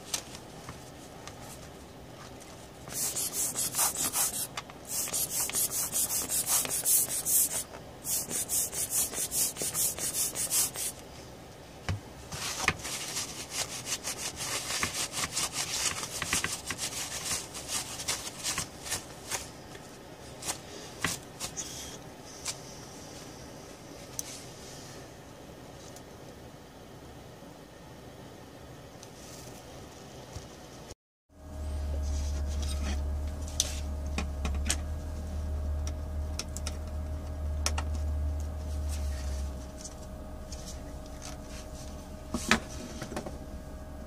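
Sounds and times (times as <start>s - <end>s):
fast scrubbing on circuit board: 2.9s - 11.0s, 12.9s - 18.6s.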